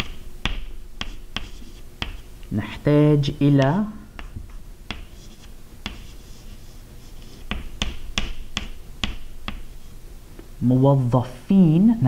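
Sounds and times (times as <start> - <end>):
chalk tapping on blackboard: 0.0 - 2.3, 3.6 - 9.8
faint chalk scraping: 1.0 - 2.2, 4.2 - 8.7.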